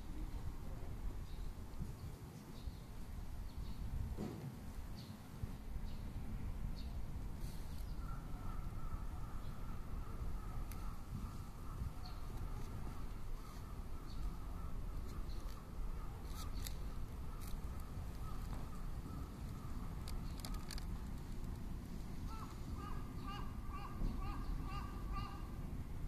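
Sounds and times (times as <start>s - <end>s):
steady low rumble: 4.8s - 26.0s
distant birds calling: 6.8s - 25.8s.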